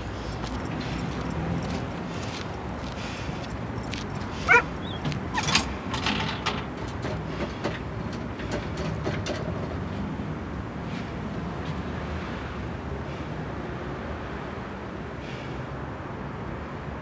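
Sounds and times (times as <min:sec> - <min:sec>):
low street rumble: 0:00.0 - 0:17.0
dog barking: 0:04.4 - 0:05.0.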